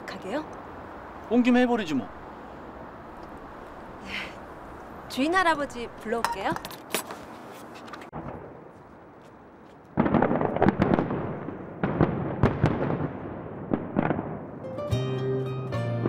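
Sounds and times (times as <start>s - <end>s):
fireworks bangs and crackles: 9.9s - 14.7s
music: 14.6s - 16.0s.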